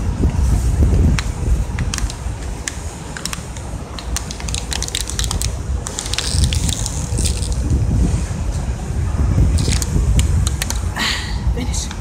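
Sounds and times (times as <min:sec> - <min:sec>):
wind rumble on microphone: 0:00.0 - 0:12.0
plastic bottle crinkling: 0:01.8 - 0:07.7, 0:09.6 - 0:10.9.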